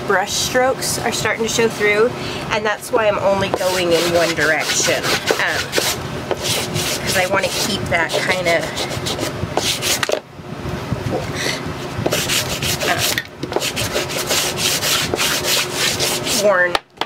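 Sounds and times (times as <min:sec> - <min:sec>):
sanding block rasping on wood: 0:03.4 - 0:10.1, 0:11.4 - 0:16.6.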